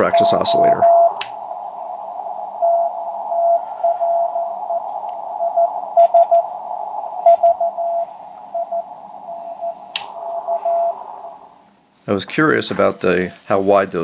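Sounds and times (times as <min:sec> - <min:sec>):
morse code tone: 0:00.0 - 0:01.2, 0:05.4 - 0:06.5, 0:07.2 - 0:09.8
radio hiss: 0:00.0 - 0:14.0.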